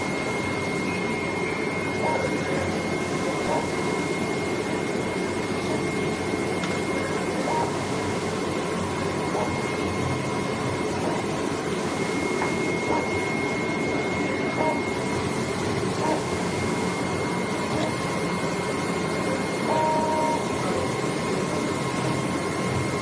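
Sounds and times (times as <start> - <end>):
whirring cutting machine: 0.0 - 23.0
thin high tone: 9.1 - 23.0.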